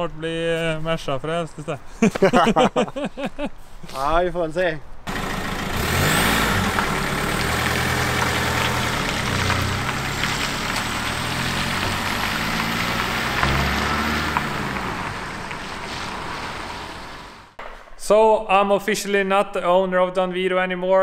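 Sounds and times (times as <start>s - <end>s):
van engine driving off: 5.1s - 17.6s.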